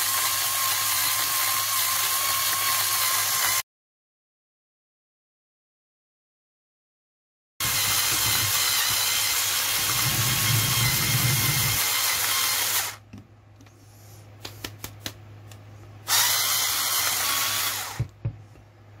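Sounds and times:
motor whirring grinding coffee: 0:00.0 - 0:03.6, 0:07.6 - 0:13.0, 0:16.1 - 0:18.2.

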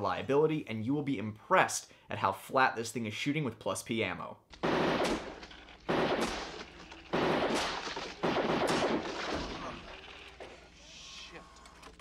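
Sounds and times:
gunshot bursts with echo: 0:04.6 - 0:10.0.

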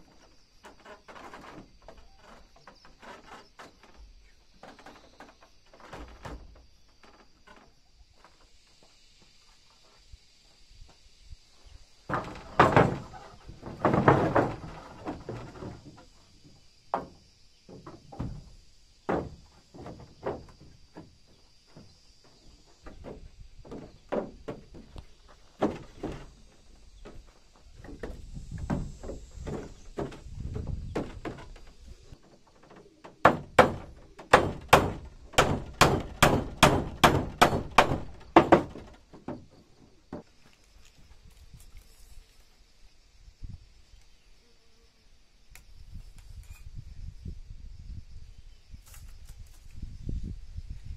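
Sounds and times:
wooden planks thudding on deck: 0:00.2 - 0:07.7, 0:12.1 - 0:40.4
knocks of timber handled: 0:12.1 - 0:16.1, 0:16.9 - 0:18.5, 0:19.1 - 0:40.3
sharp wooden taps: 0:33.0 - 0:39.4.

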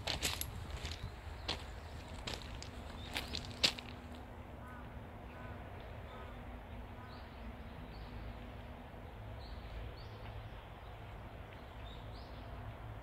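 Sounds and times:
wind rumbling on microphone: 0:00.0 - 0:04.0.

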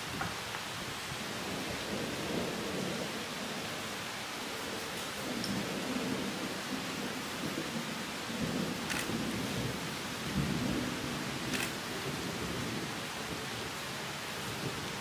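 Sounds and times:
rushing background noise: 0:11.5 - 0:11.9.

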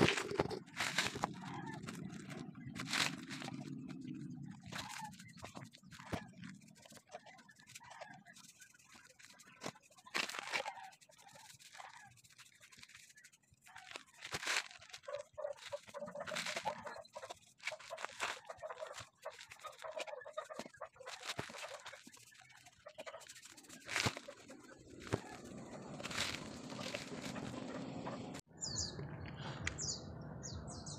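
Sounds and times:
paintbrush scratchy strokes on wood: 0:00.0 - 0:28.4
chickens clucking: 0:14.6 - 0:28.4.

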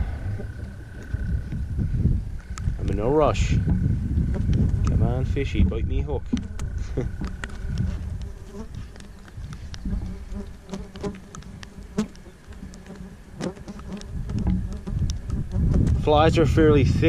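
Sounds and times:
low wind rumble: 0:00.0 - 0:13.4, 0:14.0 - 0:17.0
flies buzzing: 0:00.0 - 0:16.8
small clicks: 0:06.3 - 0:15.6.

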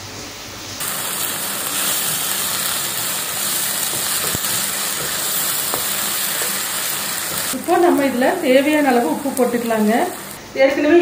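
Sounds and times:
tomatoes sizzling in oil: 0:00.8 - 0:10.4
wooden spatula stirring: 0:01.6 - 0:07.6.

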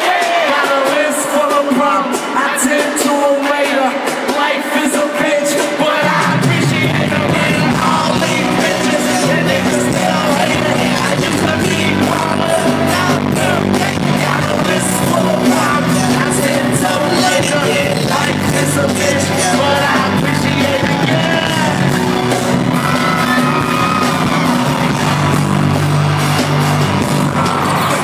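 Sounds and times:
live hip-hop music: 0:00.0 - 0:28.0
heavy bass line: 0:06.1 - 0:28.0.

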